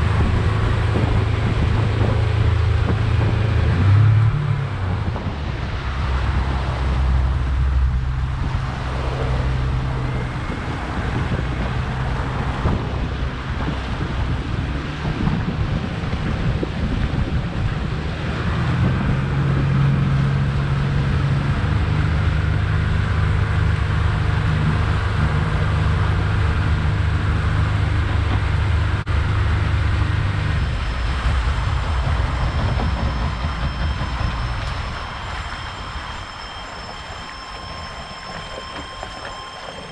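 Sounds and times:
outboard motor running: 0:00.0 - 0:05.4
water noise: 0:00.0 - 0:39.9
wind: 0:00.0 - 0:39.9
high-pitched warning alarm: 0:30.4 - 0:39.9.

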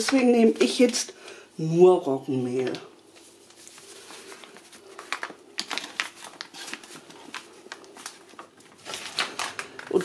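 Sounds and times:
paper bag crinkling: 0:02.6 - 0:10.0.

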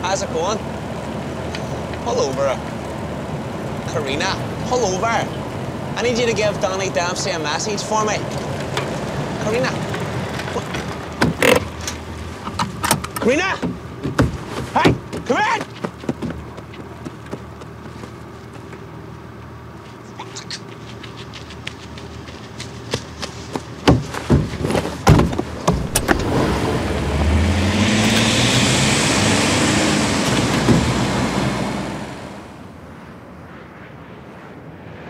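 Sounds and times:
car engine revving: 0:00.0 - 0:14.5, 0:24.4 - 0:32.7
outdoor background: 0:00.0 - 0:35.0
car door shutting: 0:10.3 - 0:15.1, 0:23.8 - 0:28.5, 0:29.6 - 0:31.9
heavy thuds: 0:13.6 - 0:16.6, 0:23.1 - 0:27.4.

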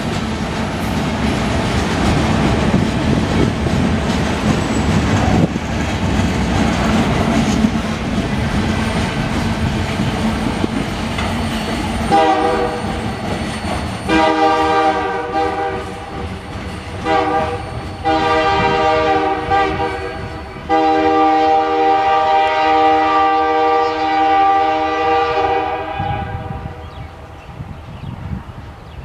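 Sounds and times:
freight cars rumbling on rails: 0:00.0 - 0:29.0
locomotive air horn blasts: 0:12.1 - 0:13.0, 0:14.1 - 0:16.2, 0:17.0 - 0:26.8.

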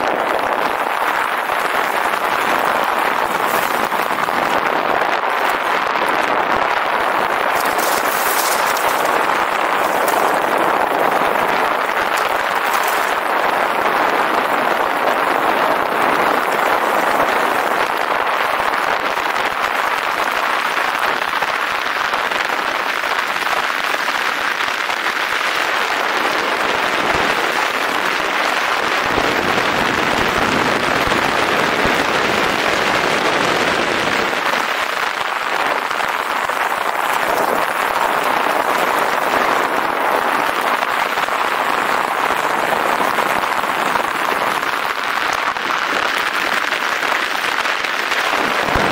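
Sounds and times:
tyres rolling over track: 0:00.0 - 0:18.0.

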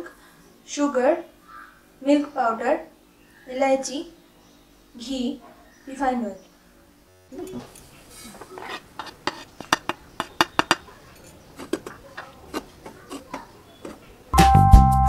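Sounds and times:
spatula scraping frying pan: 0:07.4 - 0:14.2
background music: 0:14.4 - 0:15.0.

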